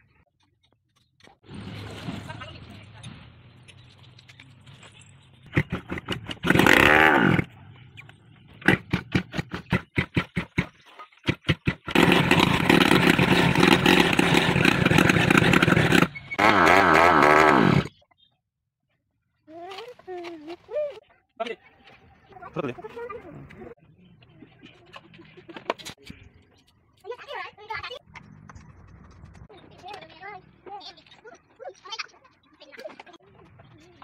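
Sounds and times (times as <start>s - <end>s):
motorcycle engine revving: 5.5s - 7.7s, 8.4s - 10.6s, 11.3s - 18.0s.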